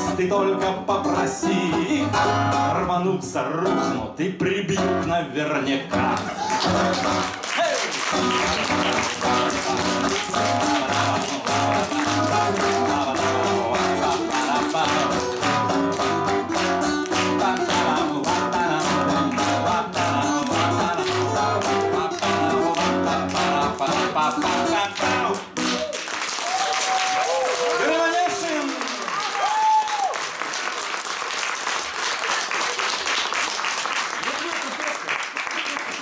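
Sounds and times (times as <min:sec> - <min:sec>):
acoustic guitars strumming: 0:00.0 - 0:07.4, 0:08.1 - 0:25.9.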